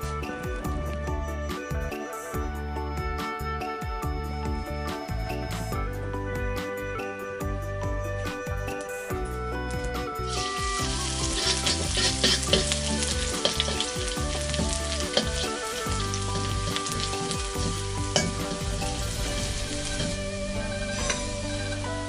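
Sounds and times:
soft background music: 0.0 - 22.0
ladle scraping a wok: 10.3 - 20.2
garlic sizzling in oil: 10.3 - 22.0.

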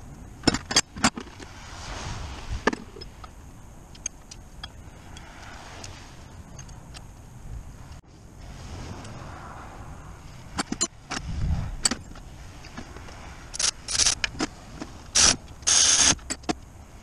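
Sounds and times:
electric ratchet running: 15.2 - 16.2.

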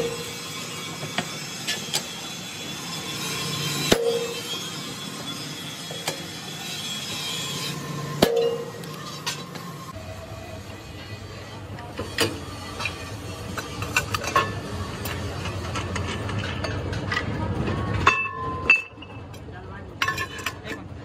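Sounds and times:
workshop machine noise: 0.0 - 21.0
hammer striking steel punch: 3.9 - 4.5, 8.2 - 8.8.

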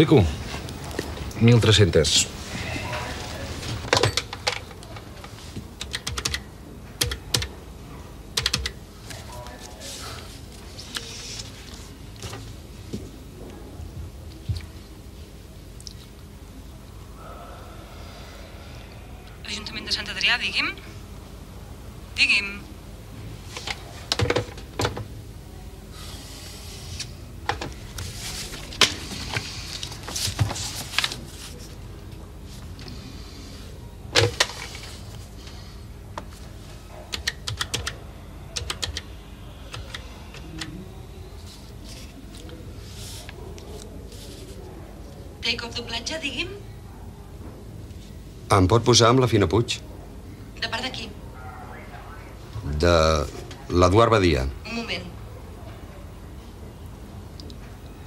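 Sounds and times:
paper rustling: 27.9 - 31.9.

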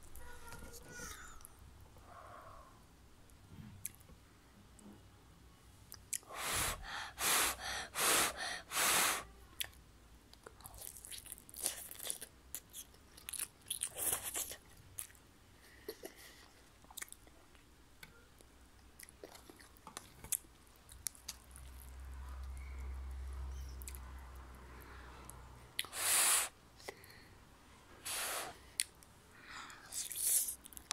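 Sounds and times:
chewing and mouth clicks: 5.9 - 6.3, 9.6 - 15.2, 15.9 - 17.6, 18.4 - 22.9, 23.8 - 24.1, 30.0 - 30.9
child slurping noodles: 6.2 - 9.3, 25.8 - 26.5.

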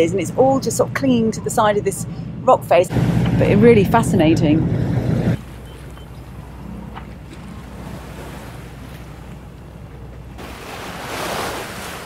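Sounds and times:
steady low hum: 0.0 - 11.2
wind buffeting microphone: 0.0 - 12.0
water rushing past boat: 2.9 - 12.0.

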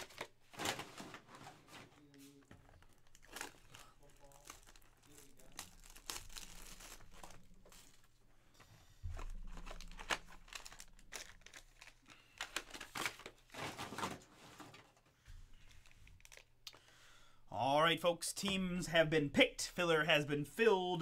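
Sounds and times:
foil and plastic wrapping crinkling: 0.0 - 8.2, 9.1 - 14.9, 15.5 - 16.9.

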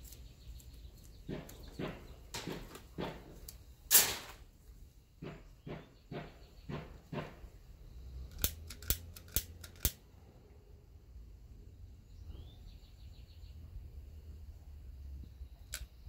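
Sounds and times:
lighter igniter clicking: 8.3 - 10.0.

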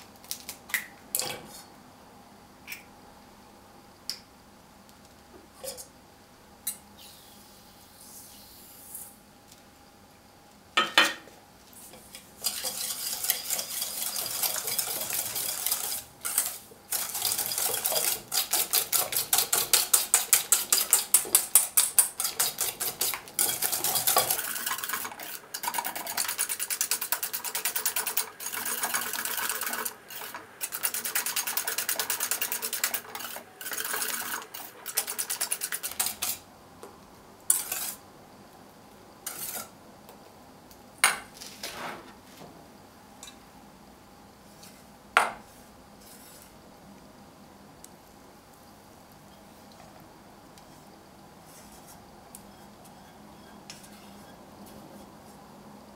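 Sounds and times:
whisk clinking against metal bowl: 12.4 - 36.4.

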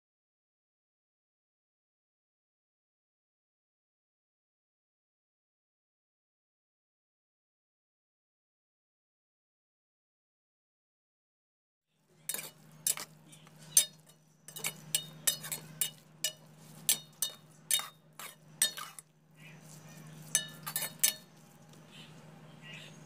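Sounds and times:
metal spatula scraping steel pan: 12.2 - 21.4.

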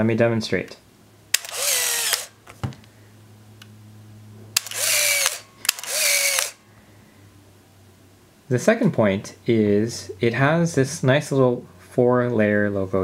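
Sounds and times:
camera motor whirring: 1.3 - 2.4, 4.6 - 6.6
sharp camera click: 1.3 - 2.4, 4.6 - 6.6.

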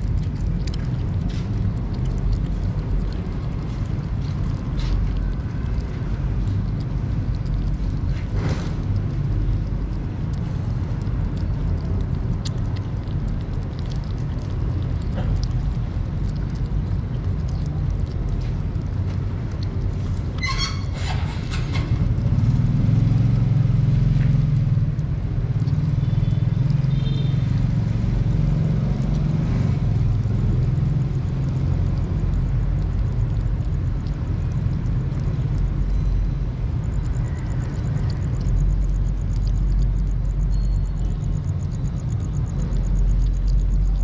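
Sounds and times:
low rumble: 0.0 - 26.8, 27.4 - 44.0
kittens chewing: 0.0 - 44.0.

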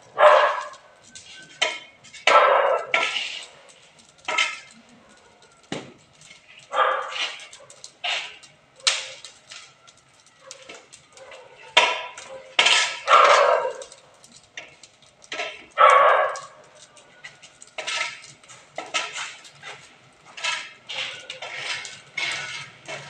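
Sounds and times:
dog barking: 0.2 - 0.8, 2.3 - 3.0, 6.7 - 7.9, 10.4 - 13.9, 15.8 - 16.6.

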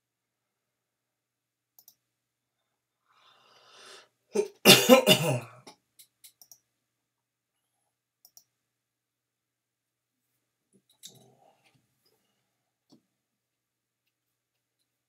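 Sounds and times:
computer mouse clicks: 1.8 - 2.0, 6.0 - 6.7, 8.2 - 8.5
man coughing: 4.4 - 5.7.

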